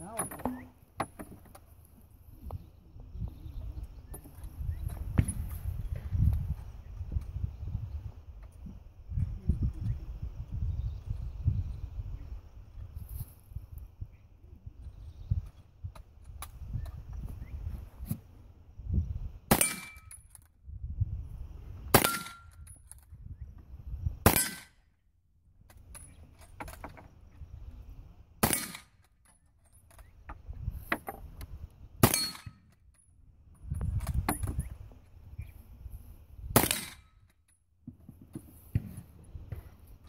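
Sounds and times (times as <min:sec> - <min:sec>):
rifle shots: 0:19.5 - 0:20.1, 0:21.9 - 0:22.5, 0:24.2 - 0:24.8, 0:28.4 - 0:29.0, 0:32.0 - 0:32.6, 0:36.6 - 0:37.1.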